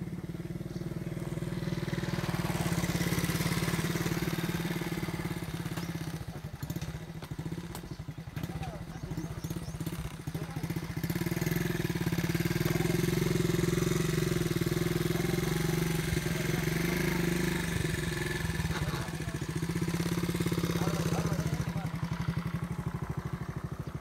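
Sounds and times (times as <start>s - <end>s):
engine running steadily: 0.0s - 24.0s.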